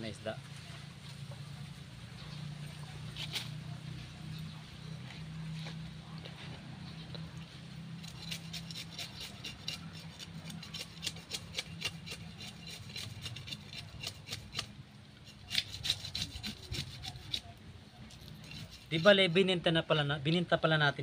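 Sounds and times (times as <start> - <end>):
knife scraping fish scales: 3.0 - 3.6, 8.0 - 19.3.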